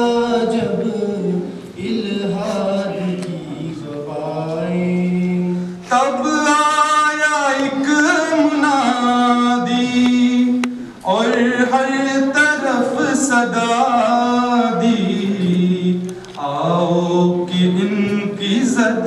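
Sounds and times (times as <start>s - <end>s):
men chanting: 5.9s - 19.0s.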